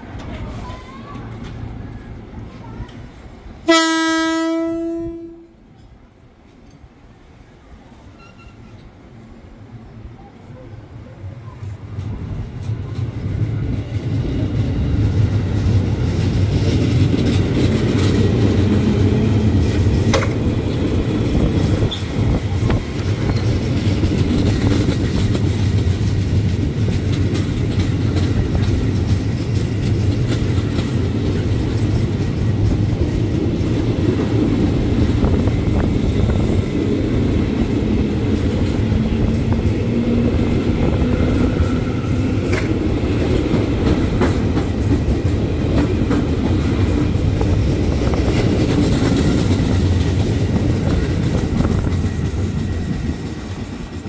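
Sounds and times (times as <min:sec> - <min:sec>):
electric train passing: 0:08.7 - 0:54.0
wheels clicking over rail joints: 0:15.7 - 0:34.6.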